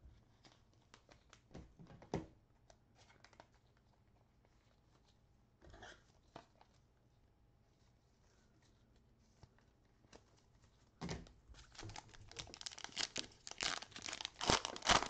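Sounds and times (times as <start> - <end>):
foil wrapper rustle: 11.6 - 15.0.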